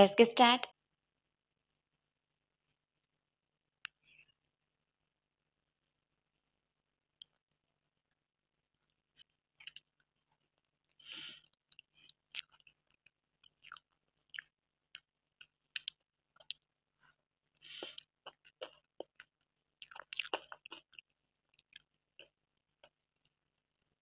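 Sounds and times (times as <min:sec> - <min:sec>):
close chewing of soft cake: 0:08.7 - 0:24.0
wet mouth clicks: 0:11.1 - 0:12.7, 0:15.8 - 0:16.6, 0:17.6 - 0:21.0.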